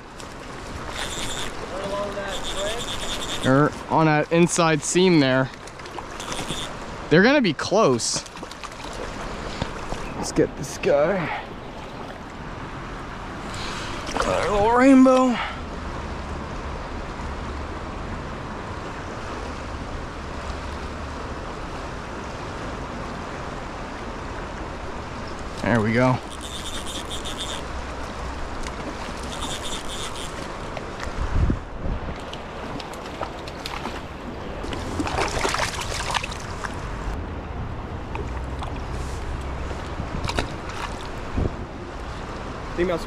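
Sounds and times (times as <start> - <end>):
stream water rushing: 0.0 - 43.0
wind rumbling on microphone: 15.7 - 42.8.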